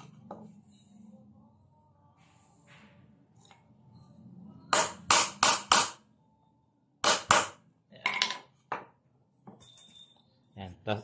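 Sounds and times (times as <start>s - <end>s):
hammer striking metal nail punch: 4.7s - 6.0s, 7.0s - 7.6s.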